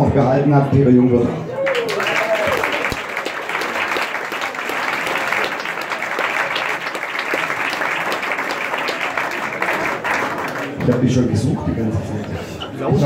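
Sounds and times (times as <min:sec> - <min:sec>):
crowd applauding: 0:01.5 - 0:11.4.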